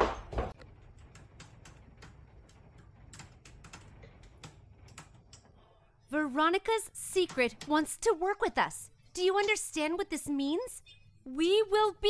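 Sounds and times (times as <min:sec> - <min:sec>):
keyboard and mouse clicking: 0:01.0 - 0:05.5.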